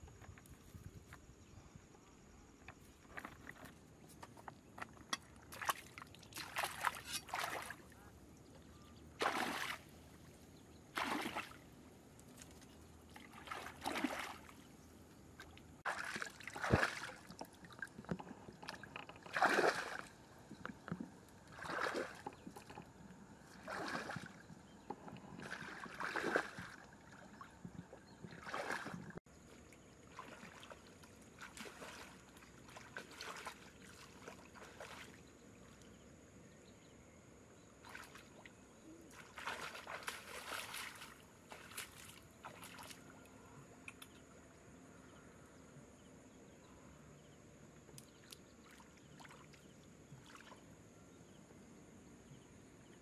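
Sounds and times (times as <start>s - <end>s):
person wading through water: 2.9s - 36.0s, 37.8s - 43.3s, 48.1s - 50.7s.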